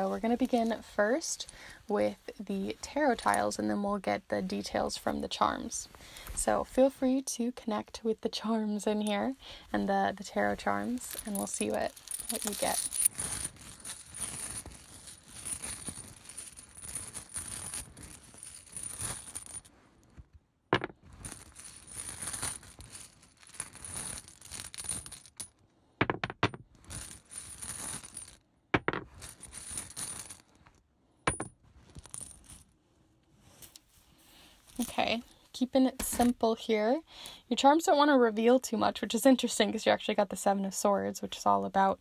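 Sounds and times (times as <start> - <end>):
tiles rattling in a container: 10.6 - 19.4
tiles clacking as they land: 20.8 - 21.0, 26.0 - 26.6, 28.8 - 29.2.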